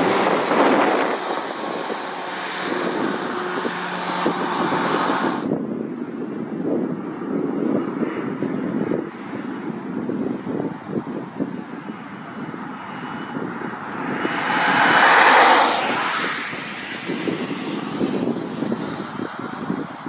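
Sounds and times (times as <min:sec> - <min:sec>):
distant lorry: 0:00.0 - 0:05.4
car passing by: 0:00.0 - 0:05.5, 0:12.9 - 0:18.4
wind rumble on microphone: 0:00.0 - 0:20.0.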